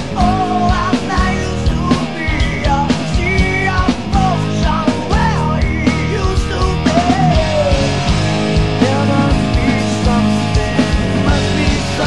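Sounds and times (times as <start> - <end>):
bending lead guitar line: 0.0 - 12.0
hard rock band playing: 0.0 - 12.0.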